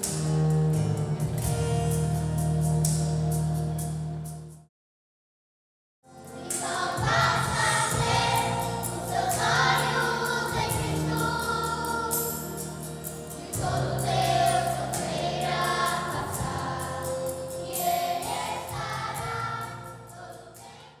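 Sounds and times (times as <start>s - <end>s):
choir singing: 6.1s - 21.0s
steady low accompaniment: 6.2s - 20.7s.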